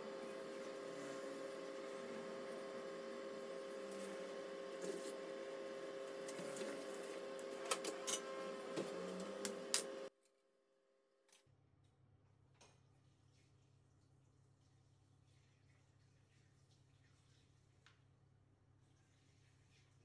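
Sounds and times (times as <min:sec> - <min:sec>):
air fryer humming: 0:00.0 - 0:10.1.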